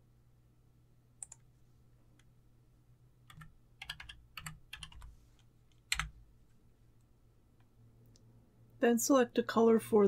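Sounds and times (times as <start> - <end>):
computer keyboard typing: 1.2 - 1.4, 3.3 - 5.1, 5.7 - 6.2.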